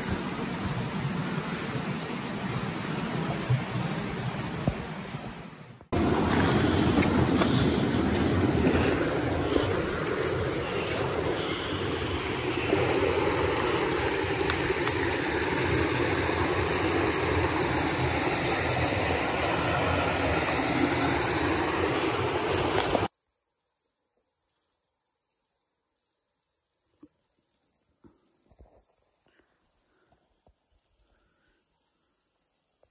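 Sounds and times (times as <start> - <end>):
stream water rushing: 0.0 - 23.1.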